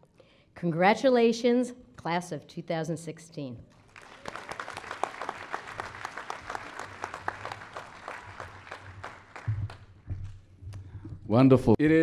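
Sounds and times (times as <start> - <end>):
audience applauding: 3.8 - 10.4
low thumps: 8.9 - 11.3.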